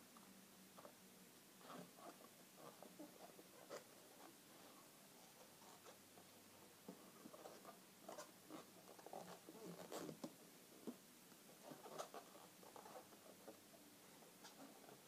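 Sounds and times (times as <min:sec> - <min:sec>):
latex balloons squeaking and rubbing: 0:07.3 - 0:10.2, 0:11.6 - 0:13.4.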